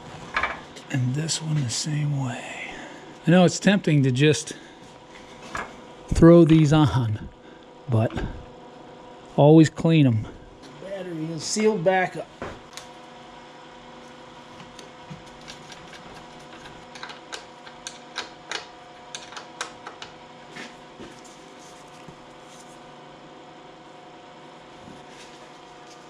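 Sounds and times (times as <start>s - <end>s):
steady background hum: 0.0s - 26.0s.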